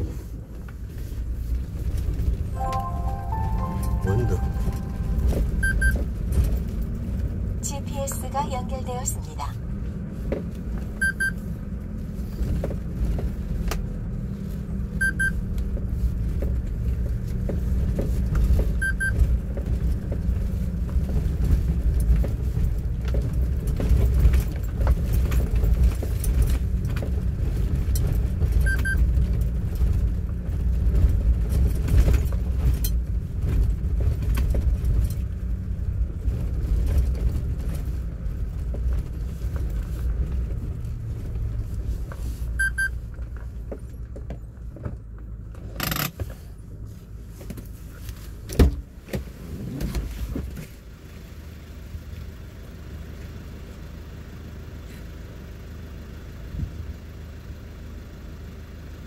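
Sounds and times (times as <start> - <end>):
vehicle rumbling on gravel: 0.0 - 59.0
electronic double beep: 3.7 - 6.0.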